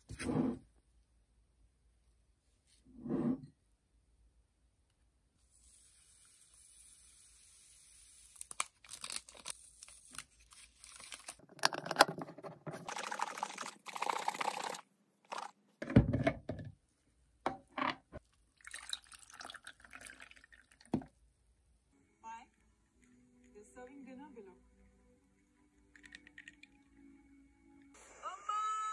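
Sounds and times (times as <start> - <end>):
juice poured over ice: 12.8 - 15.5, 18.6 - 21.0, 25.9 - 26.9
juice shaken in container: 12.8 - 15.6.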